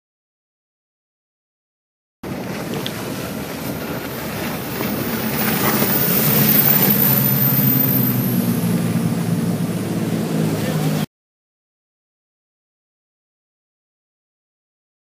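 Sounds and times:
boat engine drone: 2.2s - 11.1s
water and spray rushing: 2.2s - 11.1s.

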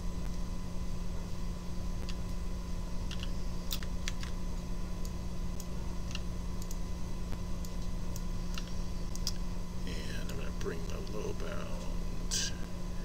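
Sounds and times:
low electrical hum: 0.0s - 13.0s
keyboard and mouse clicks: 3.1s - 4.4s.

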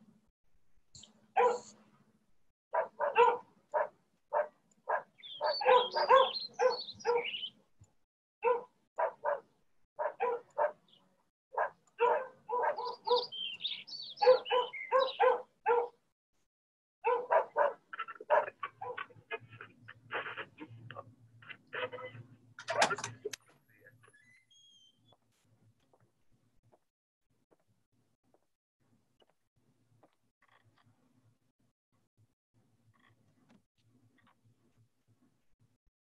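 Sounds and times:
dog barking: 1.3s - 1.8s, 2.7s - 7.5s, 8.4s - 10.9s, 11.5s - 13.4s, 14.2s - 16.0s, 17.0s - 19.5s
dog yelping: 1.4s - 1.7s, 2.8s - 7.4s, 8.4s - 9.4s, 10.0s - 10.8s, 11.6s - 13.3s, 14.2s - 15.9s, 17.0s - 19.2s.

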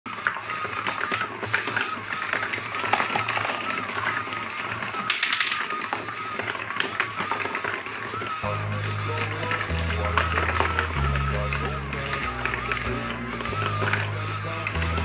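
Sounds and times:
small electric motor whining: 0.1s - 15.0s
marbles clattering on cardboard: 0.2s - 8.4s.

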